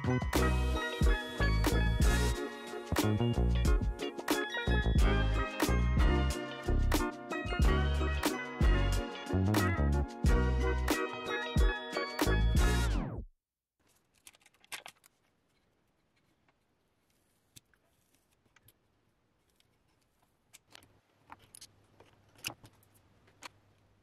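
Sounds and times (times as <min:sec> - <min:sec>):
background music: 0:00.0 - 0:13.2.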